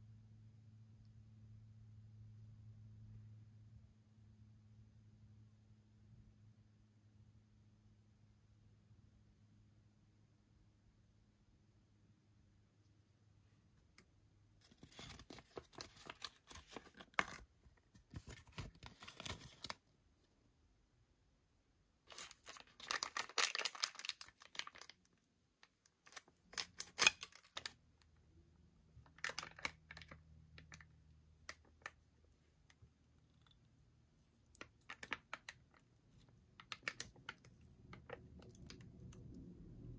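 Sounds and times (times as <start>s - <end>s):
packaging rustling and clicking: 22.1s - 25.0s.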